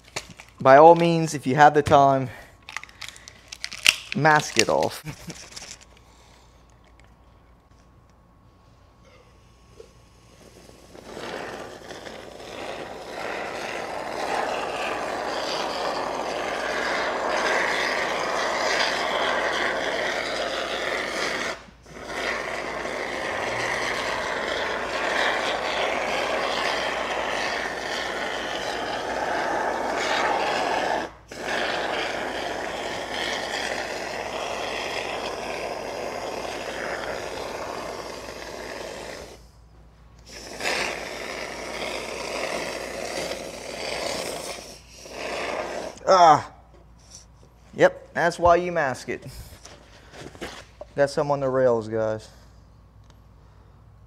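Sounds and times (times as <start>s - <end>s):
aerosol foam spraying hiss: 10.1s - 39.5s, 40.2s - 46.0s.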